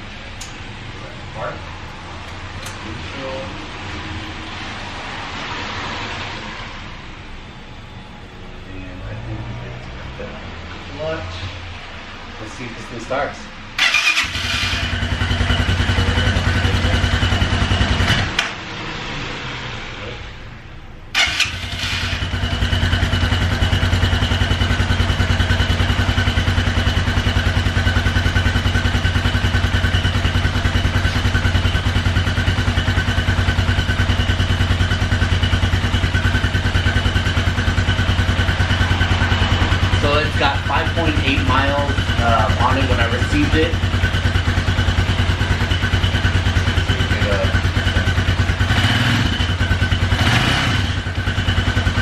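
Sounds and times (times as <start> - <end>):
motorcycle engine idling: 13.8 - 18.2, 21.2 - 52.0.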